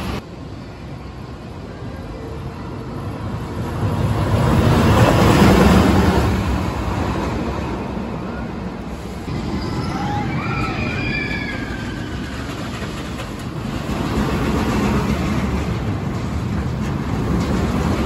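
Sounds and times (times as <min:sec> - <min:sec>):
roller coaster rumbling on track: 0:00.0 - 0:18.0
high gliding squeals: 0:08.2 - 0:13.0.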